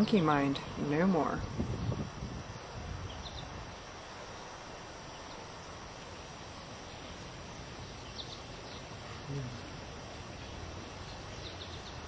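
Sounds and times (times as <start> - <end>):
steady hiss: 0.0 - 12.0.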